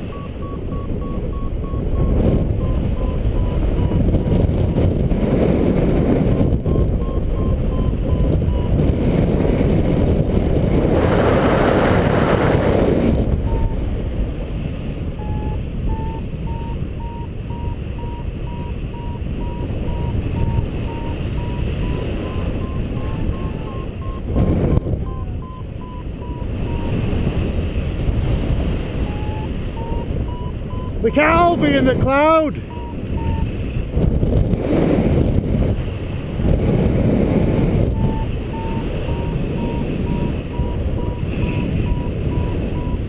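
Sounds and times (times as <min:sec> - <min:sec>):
variometer beeping: 0:00.0 - 0:09.4, 0:13.1 - 0:13.9, 0:15.1 - 0:27.4, 0:28.7 - 0:33.6, 0:37.8 - 0:43.0
wind rushing over microphone: 0:00.0 - 0:43.0.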